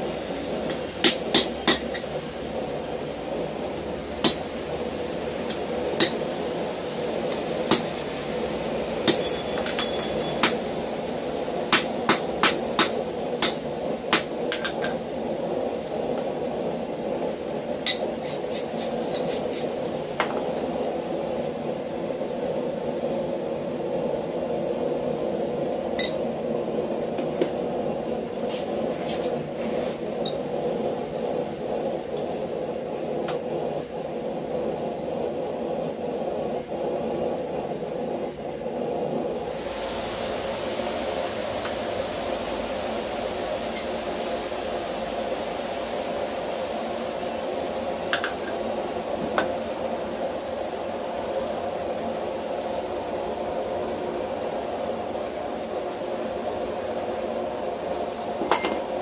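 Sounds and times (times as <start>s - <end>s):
hammer striking hot metal: 0.7s - 2.1s, 4.2s - 4.5s, 5.5s - 6.3s, 9.0s - 10.6s, 11.7s - 15.0s, 17.8s - 19.6s, 26.0s - 26.2s, 43.7s - 44.0s, 58.4s - 59.0s
road traffic rumble: 25.7s - 58.5s
wrench clinking on steel block: 58.5s - 59.0s.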